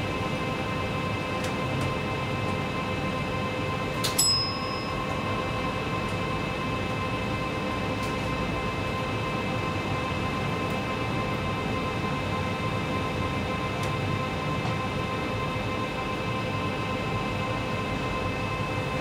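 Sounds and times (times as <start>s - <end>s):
sharp ringing click: 4.0s - 5.0s.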